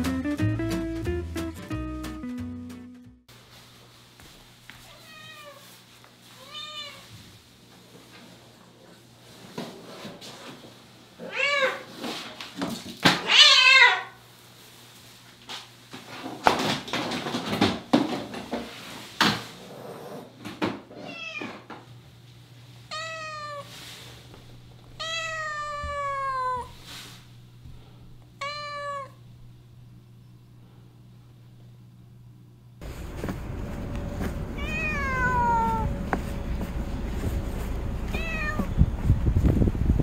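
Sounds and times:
cat meowing: 4.8 - 5.7, 6.4 - 7.1, 11.2 - 11.9, 13.2 - 14.2, 22.9 - 23.8, 25.0 - 26.8, 28.4 - 29.2, 34.6 - 36.0, 38.1 - 38.8
rustling and knocks: 15.9 - 19.6.

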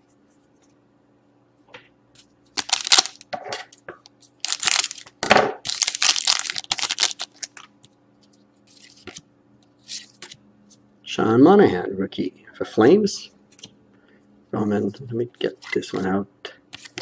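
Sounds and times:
foil wrapper crinkling and tearing: 2.6 - 3.2, 4.4 - 7.6.

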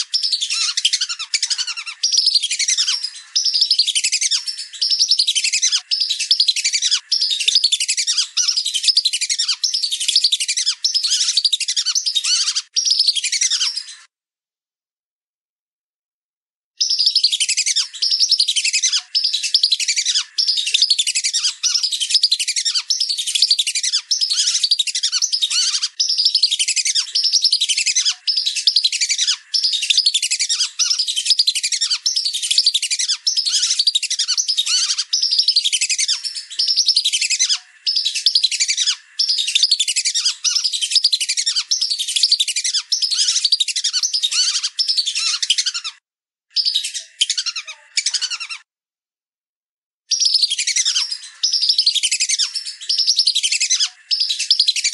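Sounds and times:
ducks whistling calls: 0.0 - 14.0, 16.9 - 45.9.

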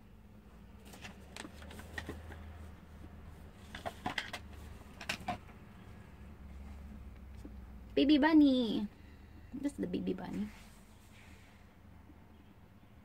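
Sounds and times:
faint low hum: 0.0 - 13.0
stuffed toys rustling: 0.7 - 5.7.

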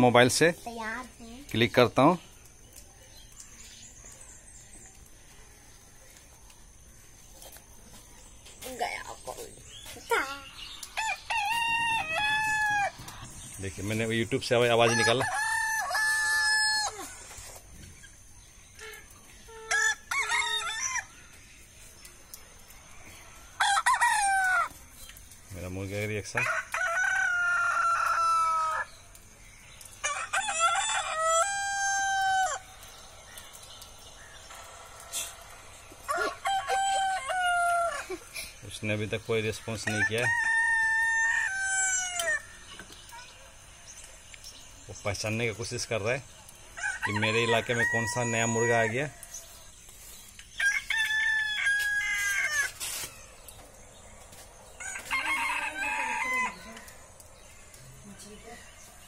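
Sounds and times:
rooster crowing from phone speaker: 46.8 - 48.9, 54.8 - 56.8.

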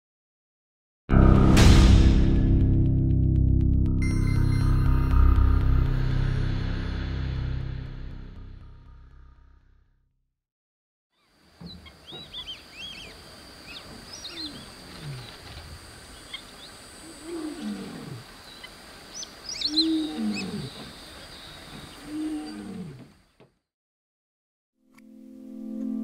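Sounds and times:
birds chirping: 11.2 - 23.5
lion roaring: 14.2 - 15.7, 17.0 - 18.4, 19.6 - 23.2.

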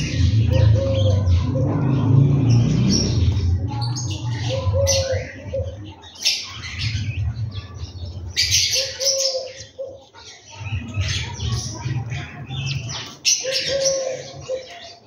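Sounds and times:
low rumble: 0.0 - 5.8
sparrows chirping: 0.0 - 15.0.

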